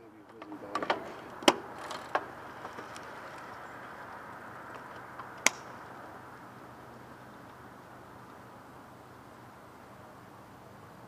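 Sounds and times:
sharp pedal clicks: 0:00.3 - 0:03.6.

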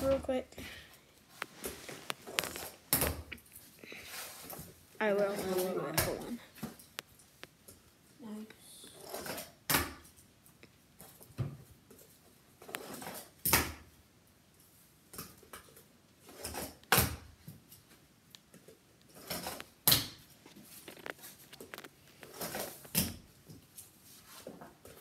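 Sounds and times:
scraping and rustling: 0:01.2 - 0:07.5, 0:19.1 - 0:25.0.

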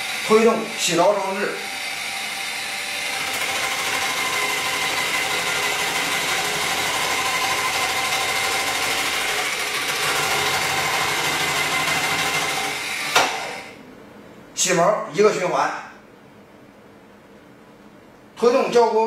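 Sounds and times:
electric motor and spinning cutter whine: 0:00.0 - 0:13.8.

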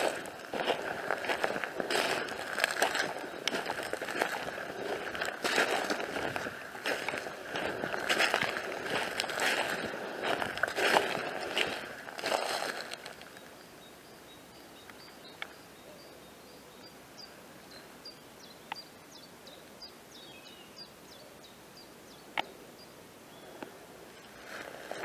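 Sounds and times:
footsteps crunching through bracken: 0:00.0 - 0:13.5, 0:24.2 - 0:25.0
small bird singing: 0:00.0 - 0:25.0.

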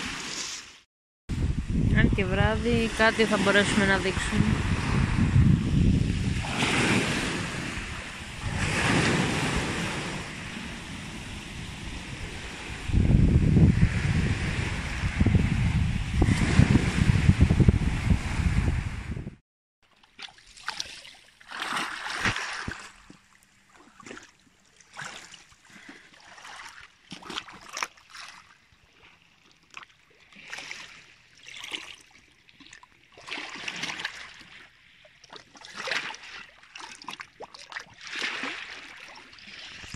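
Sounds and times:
small waves lapping: 0:06.0 - 0:12.9, 0:19.8 - 0:39.9.

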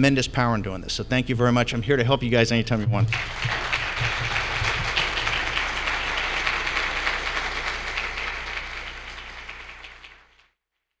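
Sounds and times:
audience applauding: 0:03.1 - 0:10.6.

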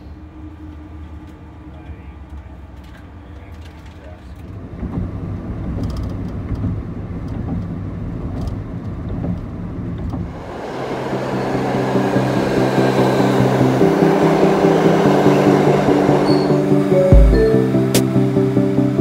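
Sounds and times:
subway train moving through station: 0:00.0 - 0:19.0
vehicle low rumble: 0:00.0 - 0:19.0
background music: 0:10.4 - 0:19.0.

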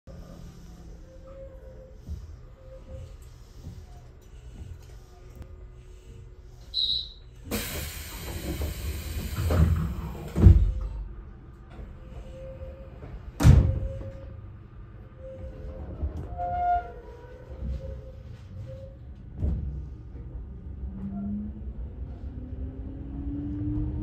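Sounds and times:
air hiss of train doors: 0:05.9 - 0:10.9.

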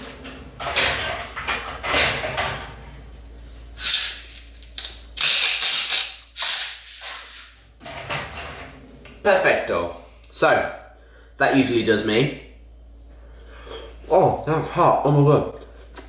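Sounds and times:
kitchen drawer opening and shutting: 0:07.8 - 0:08.8.

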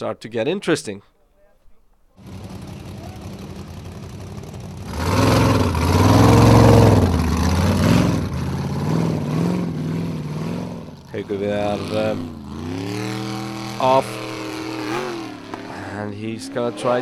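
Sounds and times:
buggy engine revving: 0:02.2 - 0:17.0.

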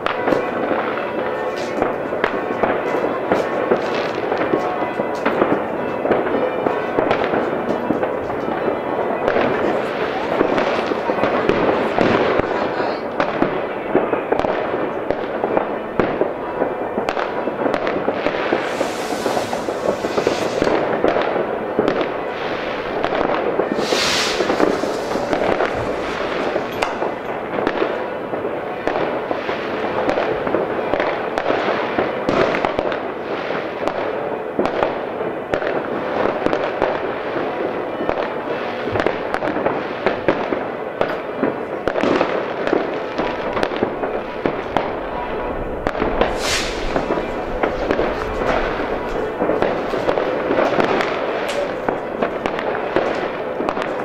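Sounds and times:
fireworks crackling: 0:00.0 - 0:54.0
fireworks hissing: 0:18.3 - 0:21.2, 0:23.7 - 0:27.6, 0:46.0 - 0:50.2.

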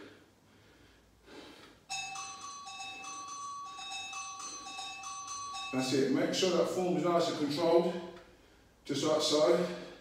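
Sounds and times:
xylophone-like ringing tune: 0:01.9 - 0:06.3.

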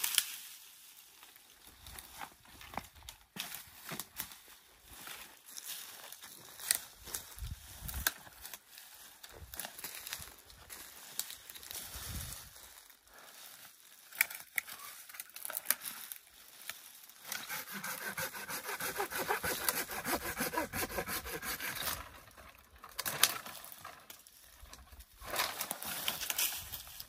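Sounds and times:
branches rustling: 0:00.0 - 0:27.0
branches cracking: 0:09.2 - 0:12.8, 0:13.8 - 0:18.2, 0:19.0 - 0:27.0
hand saw cutting branch: 0:17.2 - 0:22.3.

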